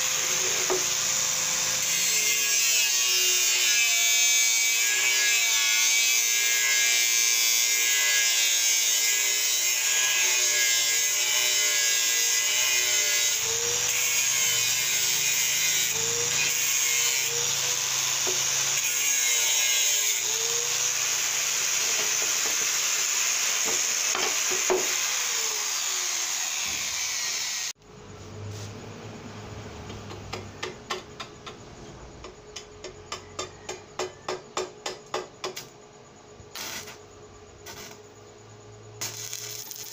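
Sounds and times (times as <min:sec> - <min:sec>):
angle grinder cutting metal: 0:00.0 - 0:27.8, 0:39.0 - 0:39.9.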